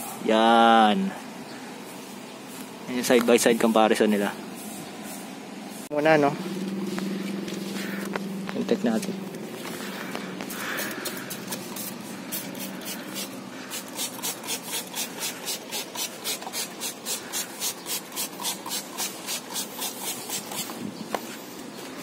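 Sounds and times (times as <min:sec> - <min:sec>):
hand scrubbing strokes: 0:00.0 - 0:22.0.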